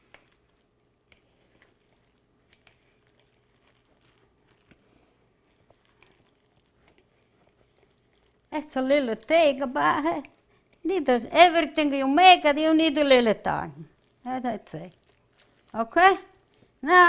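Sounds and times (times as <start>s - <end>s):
spatula stirring wet mixture: 0.0s - 17.0s.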